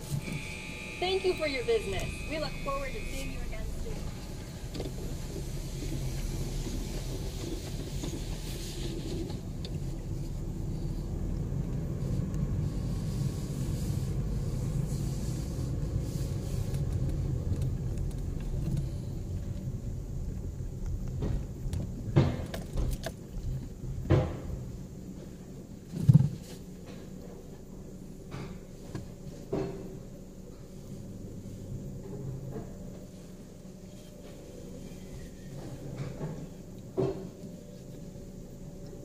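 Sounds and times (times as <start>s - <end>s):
car engine and tyres rumbling: 0.0s - 39.0s.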